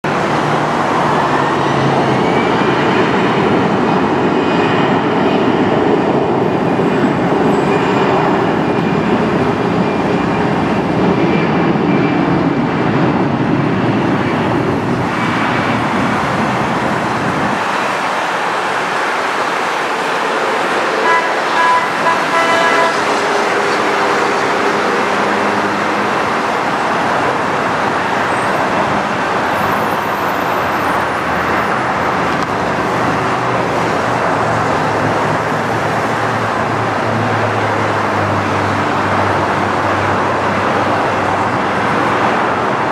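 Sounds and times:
jet engines at takeoff: 0:00.0 - 0:42.9
short horn: 0:20.9 - 0:23.9.

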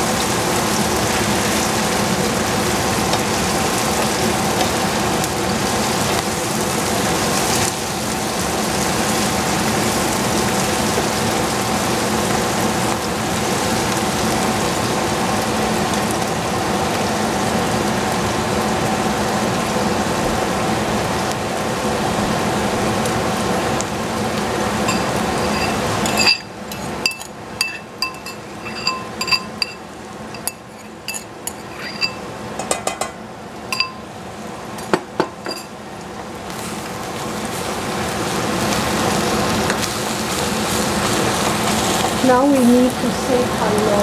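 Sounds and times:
onions sizzling in pan: 0:00.0 - 0:32.6, 0:33.2 - 0:44.0
light ringing clinks: 0:24.9 - 0:33.1, 0:33.7 - 0:34.0, 0:35.4 - 0:35.7.

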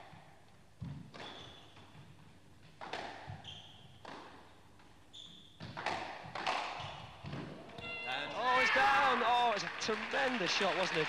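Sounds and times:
shoes squeaking on court: 0:00.8 - 0:08.3
squash ball hits: 0:02.8 - 0:04.5, 0:05.6 - 0:07.6.

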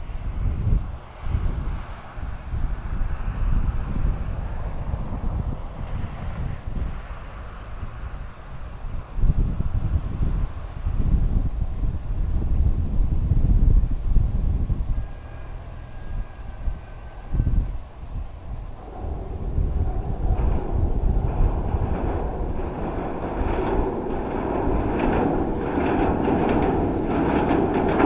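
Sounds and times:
high-pitched insect chorus: 0:00.0 - 0:28.0
wind buffeting microphone: 0:00.0 - 0:28.0.

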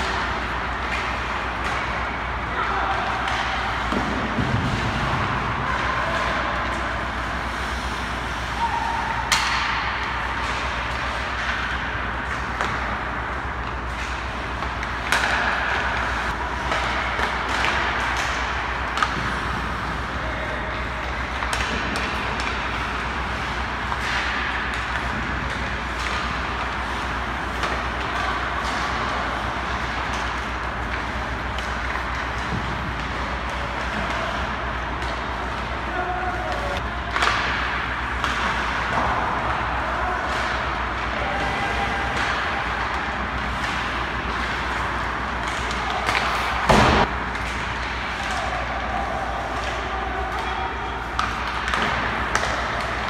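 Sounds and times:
pucks cracking against sticks: 0:00.0 - 0:53.0
sticks and pucks clattering: 0:00.0 - 0:53.0
skates scraping on ice: 0:41.3 - 0:48.2.

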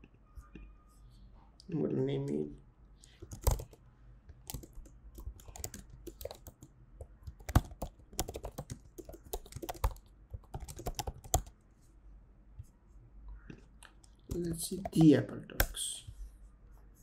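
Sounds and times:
typing on computer keyboard: 0:03.2 - 0:03.8, 0:04.4 - 0:11.6.

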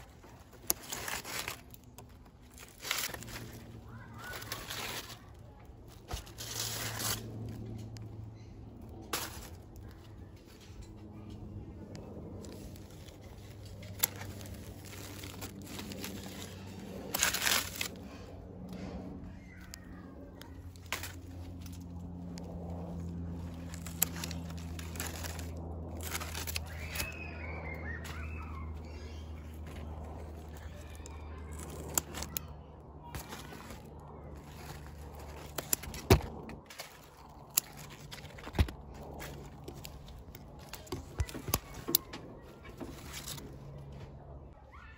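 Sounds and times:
plastic bag crinkling: 0:00.0 - 0:07.6, 0:12.3 - 0:18.2, 0:22.8 - 0:27.4, 0:33.1 - 0:42.0
scissors snipping: 0:11.4 - 0:22.5, 0:23.5 - 0:27.2, 0:29.8 - 0:42.2.

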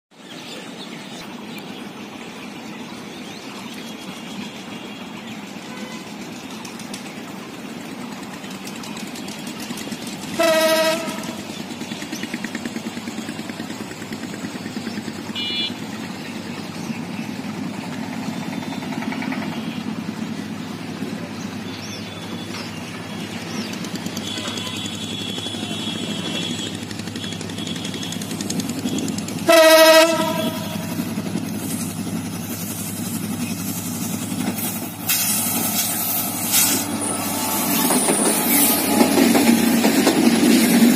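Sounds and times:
rail noise: 0:00.1 - 0:40.9
diesel locomotive engine running: 0:00.5 - 0:40.9
train horn blasts: 0:05.6 - 0:06.2, 0:10.3 - 0:11.5, 0:15.3 - 0:15.9, 0:24.1 - 0:31.2.

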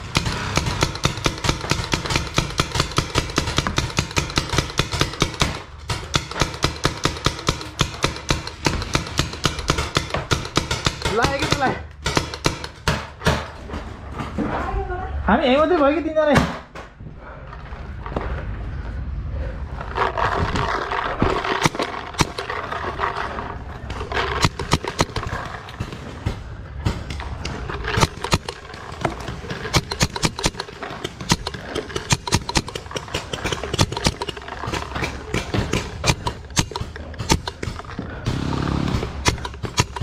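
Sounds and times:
rough rustling scraping: 0:17.7 - 0:35.4.

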